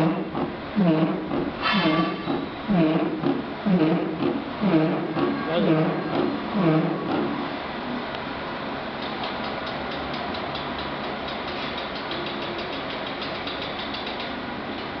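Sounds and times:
machine mechanical drone: 0.0s - 8.2s.

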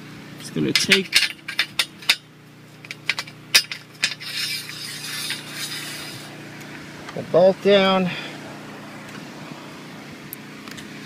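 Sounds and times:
bolt clinking against metal rail: 0.6s - 2.2s.

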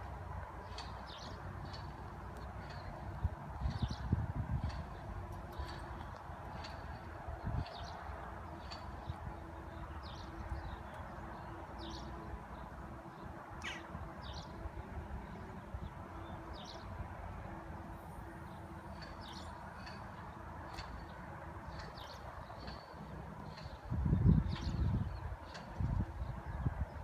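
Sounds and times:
low outdoor background noise: 0.0s - 27.0s
small birds chirping: 0.6s - 14.6s.

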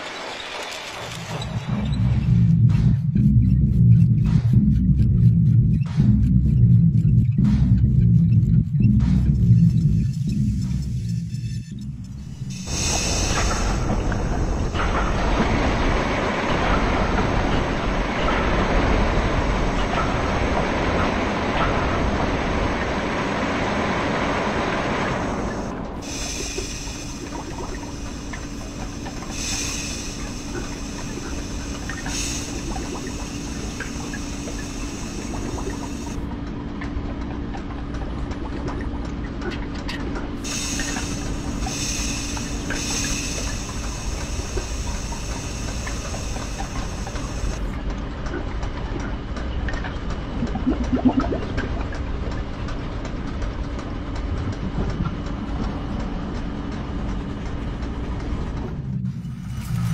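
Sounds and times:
mechanical rumble and clatter: 0.0s - 59.9s
steady low hum: 1.1s - 59.9s
steam hissing: 9.6s - 36.2s, 40.4s - 47.8s.

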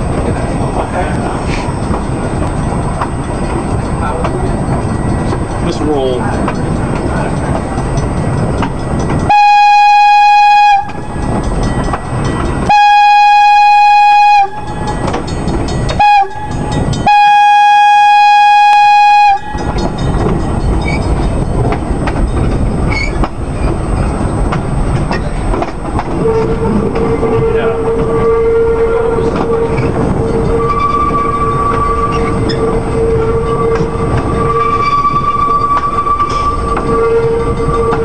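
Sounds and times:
train wheels clicking on rail joints: 0.0s - 38.0s
train horn blasts: 9.3s - 11.3s, 12.6s - 14.9s, 15.9s - 20.0s, 26.0s - 38.0s.

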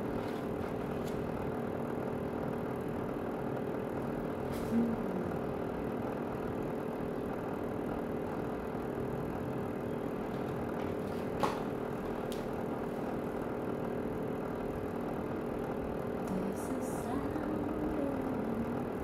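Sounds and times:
garment steamer humming and hissing: 0.0s - 7.9s.

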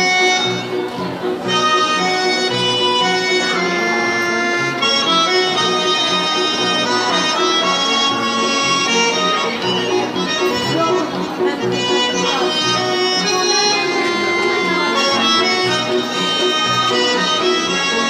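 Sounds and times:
button accordion folk dance tune: 0.0s - 18.0s.

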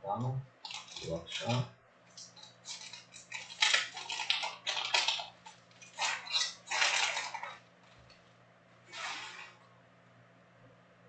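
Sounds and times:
plastic wrapper crinkling and tearing: 0.6s - 8.2s.

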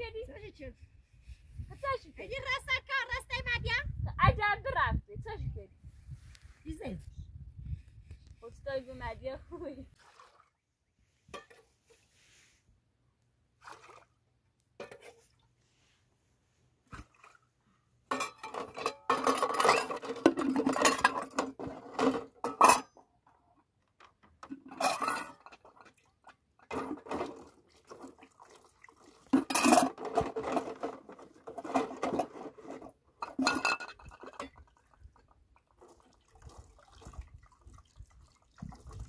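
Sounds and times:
metal pots and bowls clattering: 14.8s - 15.2s, 18.1s - 23.0s, 24.4s - 27.5s, 29.4s - 34.7s.

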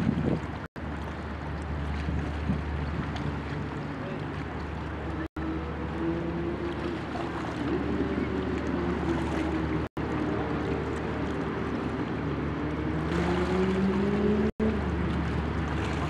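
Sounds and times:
boat engines droning: 0.0s - 16.0s.

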